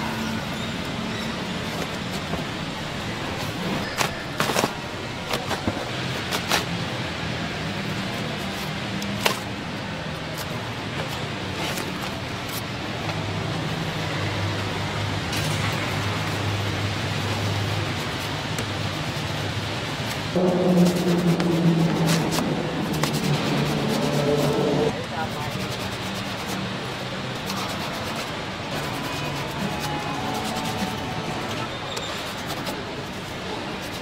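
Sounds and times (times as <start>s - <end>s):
steady low hum: 20.2s - 25.0s.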